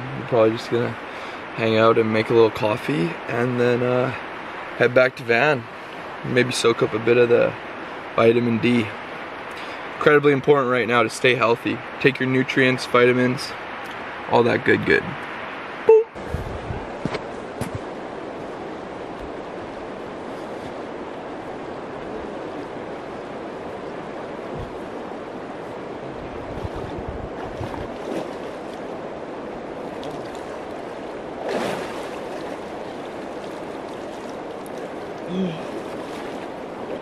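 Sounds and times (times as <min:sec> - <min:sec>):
shallow river flowing: 0:00.0 - 0:37.0
person wading and splashing: 0:26.3 - 0:37.0.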